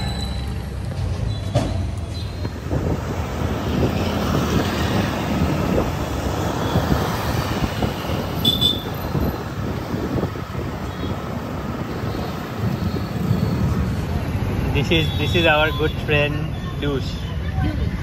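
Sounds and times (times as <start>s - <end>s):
high squeal: 0.0s - 2.6s, 11.9s - 13.9s
vehicle road and wind noise: 0.0s - 18.0s.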